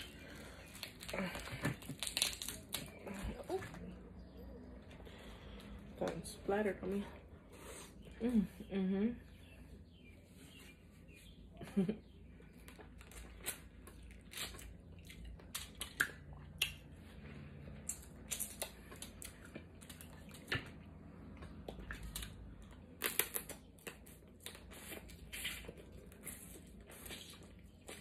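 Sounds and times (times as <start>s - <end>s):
crab shells cracking: 0.7s - 3.0s.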